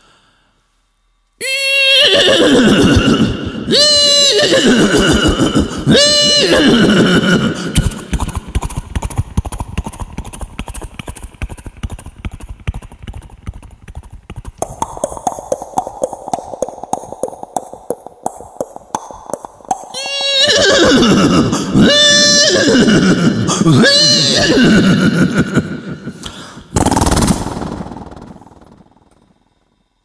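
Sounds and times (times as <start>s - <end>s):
person imitating horse whinny: 1.4s - 7.9s, 19.9s - 25.3s
mouth clicks imitating hoofbeats: 4.6s - 24.2s.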